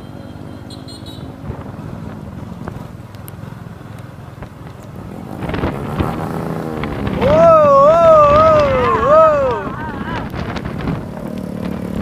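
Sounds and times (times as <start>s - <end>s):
small motorbike engines running: 0.0s - 12.0s
motorbike engine revving: 4.9s - 12.0s.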